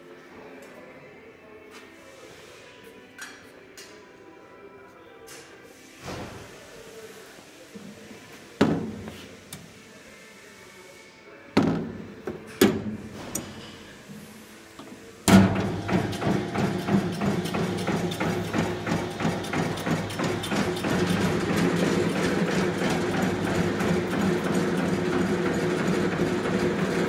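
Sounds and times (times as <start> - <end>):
rhythmic mechanical clatter: 15.3 - 27.0.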